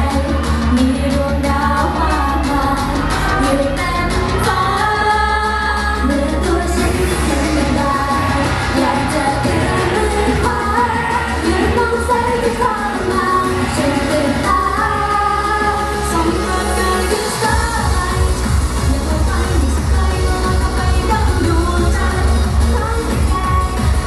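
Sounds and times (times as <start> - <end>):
backing track with steady beat: 0.0 - 24.0
women singing pop song: 0.0 - 24.0.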